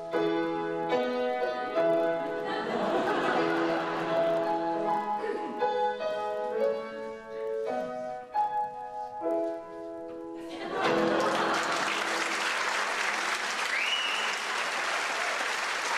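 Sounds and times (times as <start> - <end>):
audience applause: 10.6 - 15.9
person whistling: 13.7 - 14.5.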